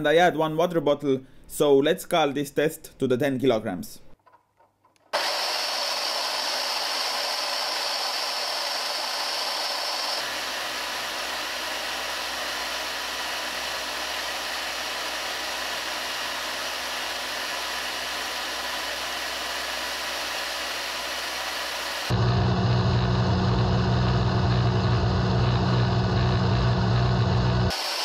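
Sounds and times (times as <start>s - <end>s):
motors whirring whine: 5.2s - 28.0s
low hum: 18.1s - 27.7s.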